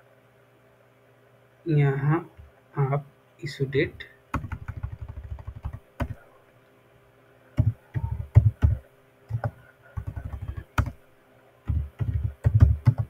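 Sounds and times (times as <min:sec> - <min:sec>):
keyboard typing: 0:04.3 - 0:06.2, 0:07.6 - 0:11.0, 0:11.7 - 0:13.0.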